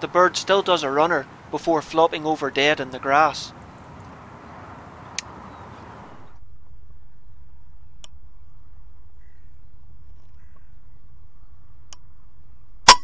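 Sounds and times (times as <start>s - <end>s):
faint low rumble: 6.0s - 13.0s.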